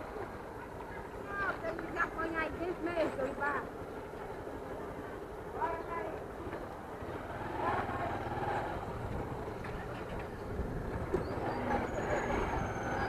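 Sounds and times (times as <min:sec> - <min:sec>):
road and wind noise: 0:00.0 - 0:13.0
small motorcycle engine running: 0:07.0 - 0:13.0.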